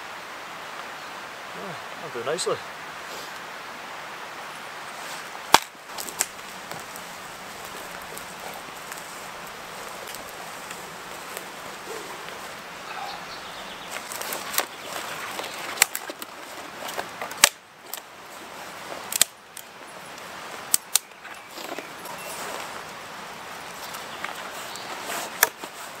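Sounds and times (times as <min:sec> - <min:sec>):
footsteps on forest floor: 0:04.9 - 0:26.0
twigs snapping: 0:05.5 - 0:13.1, 0:13.8 - 0:23.0, 0:23.6 - 0:26.0.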